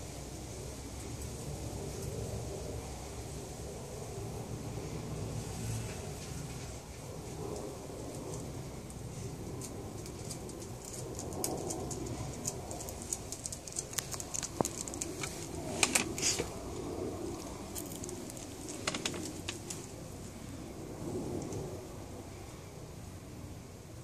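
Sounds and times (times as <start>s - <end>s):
dog claws clicking on paving: 7.5s - 16.7s, 17.3s - 19.8s.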